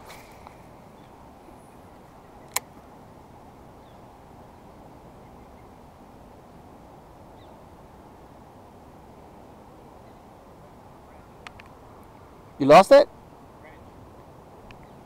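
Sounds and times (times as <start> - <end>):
outdoor background noise: 0.0 - 15.0
sharp click: 2.5 - 2.7.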